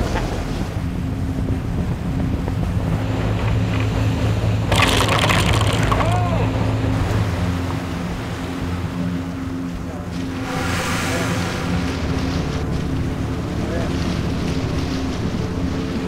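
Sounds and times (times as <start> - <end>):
boat engine drone: 0.0 - 16.0
rush of the wake: 0.0 - 16.0
rush of spray: 4.7 - 6.1, 10.1 - 16.0.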